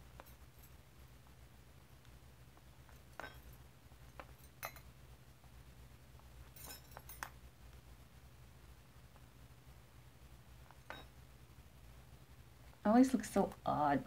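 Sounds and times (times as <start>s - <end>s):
low steady hum: 0.0s - 14.0s
metal bangles clinking: 0.1s - 0.8s, 2.8s - 5.0s, 6.4s - 7.4s.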